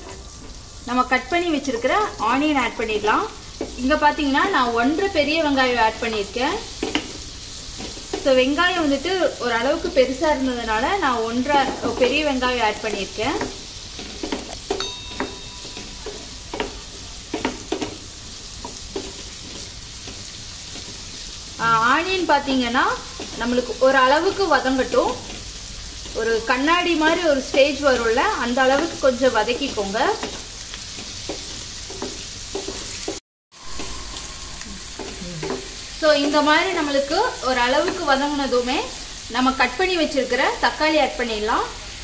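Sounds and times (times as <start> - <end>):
onions sizzling in a pan: 0.0 - 42.0
wooden spatula scraping a pan: 6.0 - 8.4, 13.1 - 14.8, 15.7 - 21.4, 22.9 - 36.8.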